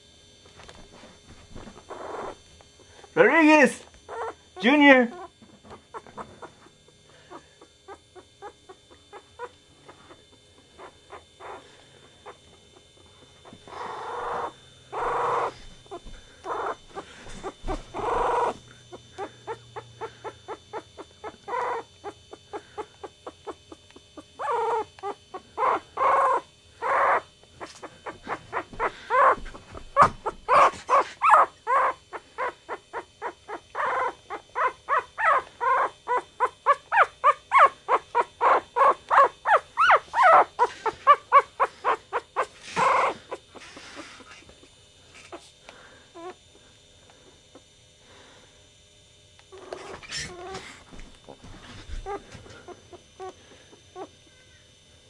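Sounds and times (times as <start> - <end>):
puppies whining: 0.9 - 48.3, 49.5 - 54.5
puppies squeaking: 1.8 - 2.4, 4.1 - 6.7, 7.3 - 10.2, 10.8 - 12.5, 13.4 - 23.6, 24.2 - 44.4, 46.2 - 46.4, 49.5 - 53.4.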